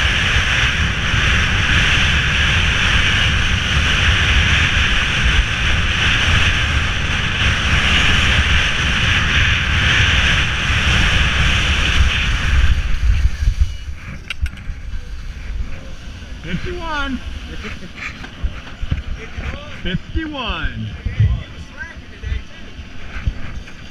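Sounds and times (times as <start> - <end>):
skis hissing over snow: 0.0 - 20.8
wind rumbling on microphone: 0.0 - 23.9.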